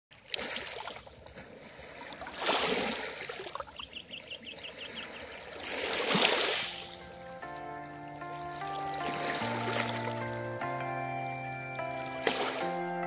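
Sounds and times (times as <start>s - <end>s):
waves lapping on pebbly shore: 0.2s - 3.8s, 4.8s - 7.5s.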